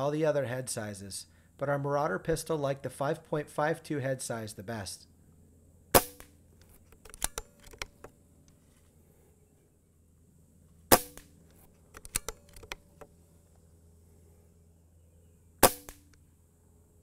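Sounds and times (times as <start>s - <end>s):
air pistol shots: 5.9s - 6.4s, 10.9s - 11.4s, 15.6s - 16.1s
metallic bolt clicks: 6.6s - 8.1s, 11.9s - 13.1s.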